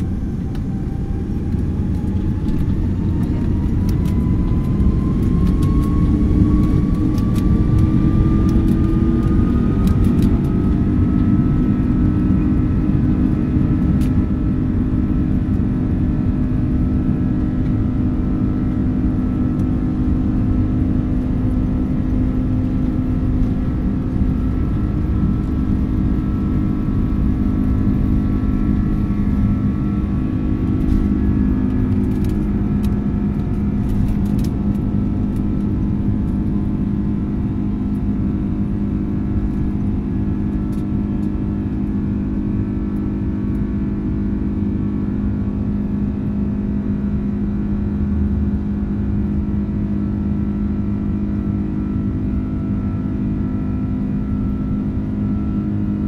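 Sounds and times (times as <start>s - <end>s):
jet engines roaring: 0.0s - 56.0s
low hum of steady tones: 0.0s - 56.0s.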